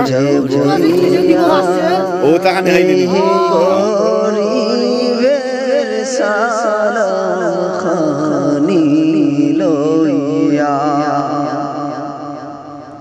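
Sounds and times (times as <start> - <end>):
man singing wavering held notes: 0.0 - 4.0.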